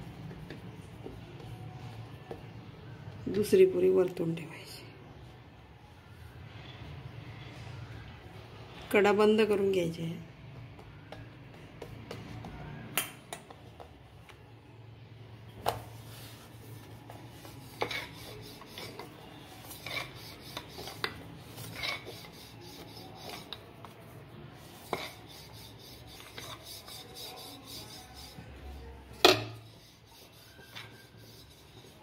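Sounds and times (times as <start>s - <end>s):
rolling pin rasping on dough: 16.0s - 32.0s.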